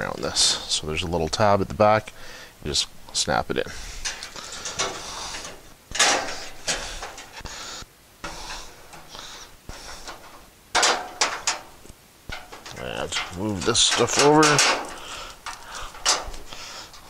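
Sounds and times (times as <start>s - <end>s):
parts scraping against metal cabinet: 3.7s - 7.5s, 8.2s - 17.0s
metal clatters: 4.0s - 7.5s, 8.2s - 17.0s.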